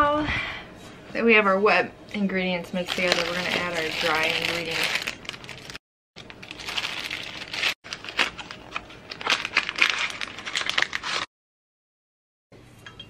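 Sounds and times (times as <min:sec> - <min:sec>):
plastic bag crinkling and rustling: 0:02.8 - 0:11.3.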